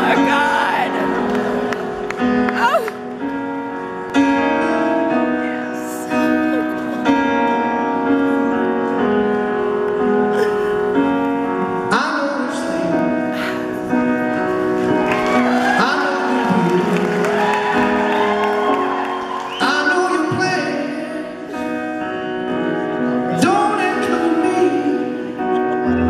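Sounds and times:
keyboard playing slow chords: 0:00.0 - 0:26.0
live band ballad: 0:00.0 - 0:26.0
audience cheering and whooping: 0:15.0 - 0:20.2.

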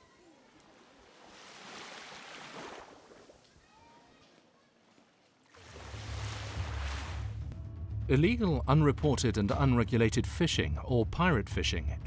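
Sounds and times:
small wave washing onto sand: 0:00.3 - 0:03.7, 0:04.9 - 0:07.4.

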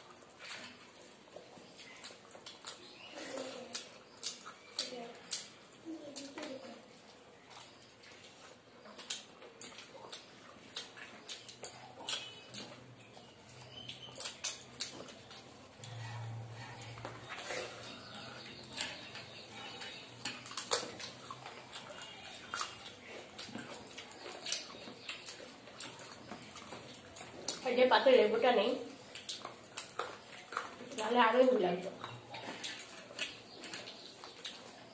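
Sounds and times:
chewing and lip smacks: 0:00.0 - 0:34.9.

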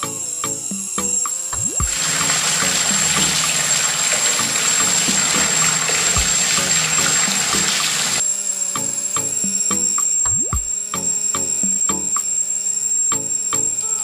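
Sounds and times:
juice pouring into metal pot: 0:01.7 - 0:08.2.

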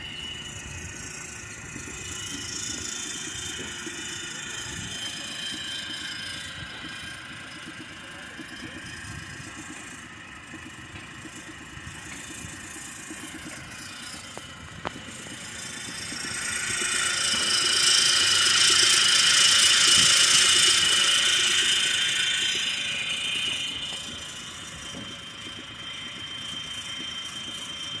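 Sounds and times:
conveyor motor whining: 0:00.0 - 0:28.0.

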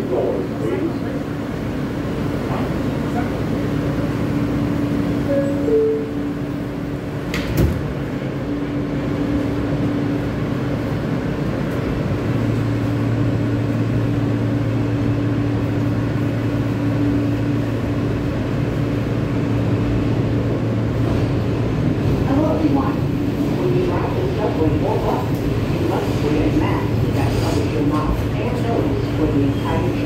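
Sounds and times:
subway car hum: 0:00.0 - 0:30.0
subway doors sliding shut: 0:00.0 - 0:30.0
train propulsion tone: 0:05.2 - 0:06.7.

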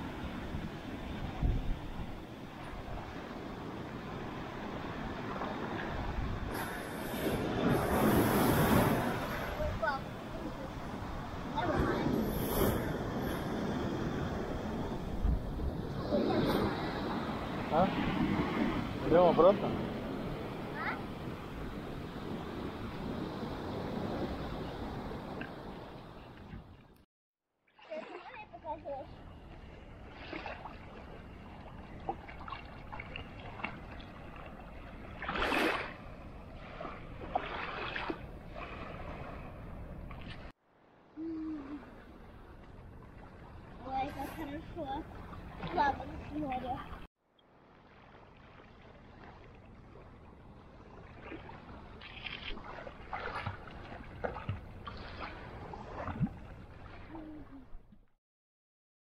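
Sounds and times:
sea surf washing on beach: 0:00.0 - 0:26.7, 0:29.9 - 0:40.5, 0:41.2 - 0:47.1
water splashes: 0:00.0 - 0:27.0, 0:27.7 - 0:40.5, 0:41.2 - 0:58.1.

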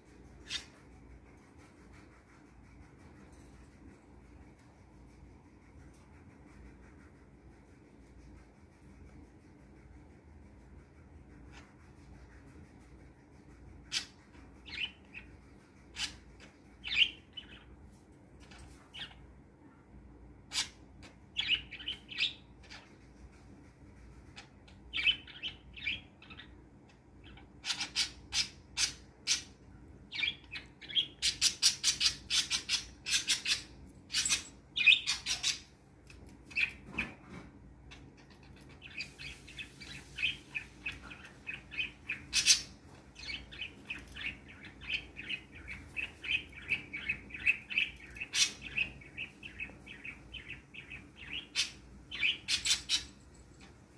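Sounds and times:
budgerigars chirping: 0:20.5 - 0:22.8, 0:24.9 - 0:26.5, 0:27.2 - 0:35.7, 0:38.2 - 0:53.1.

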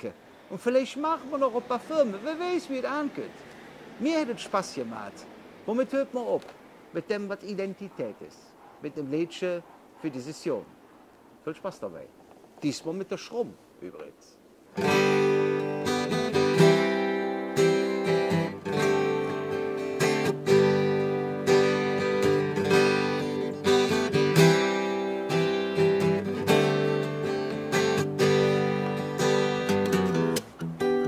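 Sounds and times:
acoustic guitar strumming chords: 0:14.8 - 0:31.0.

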